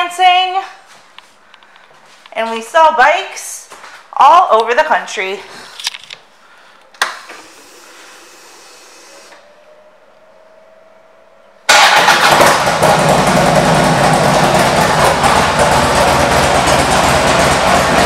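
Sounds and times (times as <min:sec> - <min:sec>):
faint whine: 0:05.5 - 0:11.7
motorcycle engine running loudly: 0:11.7 - 0:18.0.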